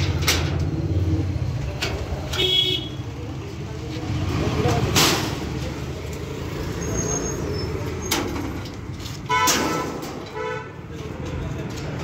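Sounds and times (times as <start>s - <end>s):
traffic engine rumble: 0.0s - 12.0s
vehicle horn toot: 2.4s - 3.0s.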